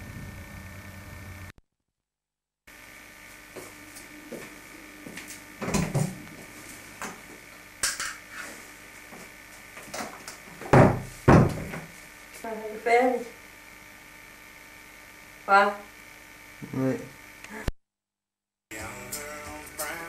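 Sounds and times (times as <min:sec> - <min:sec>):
steady electrical hum: 0:02.7 - 0:17.7
knocks and bumps: 0:10.6 - 0:11.9.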